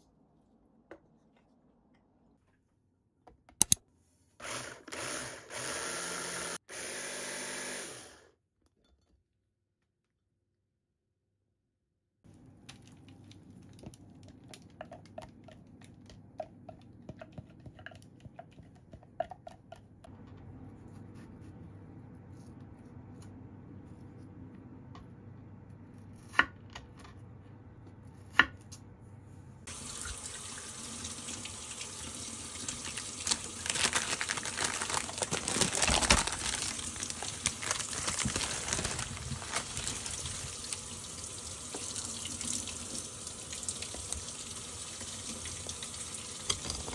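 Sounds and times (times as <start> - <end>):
running water: 29.7 - 46.9.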